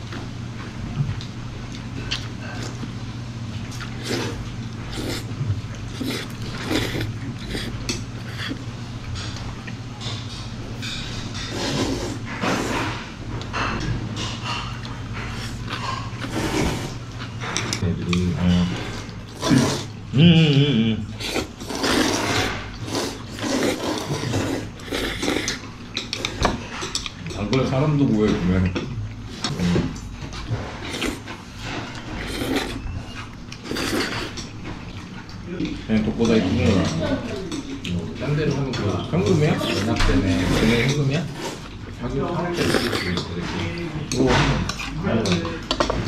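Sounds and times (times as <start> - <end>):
steady low hum: 0.0 - 46.0
noodles being slurped: 3.7 - 8.6, 11.4 - 13.0, 19.3 - 20.0, 21.2 - 25.6, 32.0 - 32.8, 33.6 - 34.4, 42.5 - 43.2.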